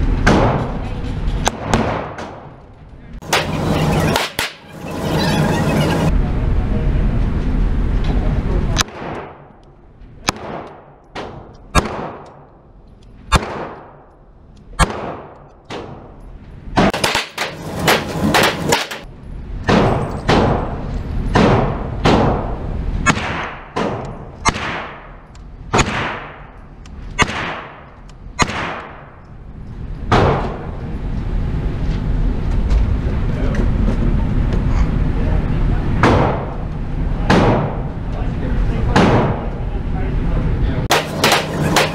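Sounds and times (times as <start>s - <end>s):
target carrier mechanical hum: 2.4s - 8.8s, 16.0s - 23.0s, 27.8s - 41.9s
gunshots echoing indoors: 8.8s - 9.6s, 10.2s - 12.6s, 13.3s - 14.1s, 14.8s - 16.2s, 16.8s - 26.6s, 27.2s - 29.2s, 40.9s - 41.9s.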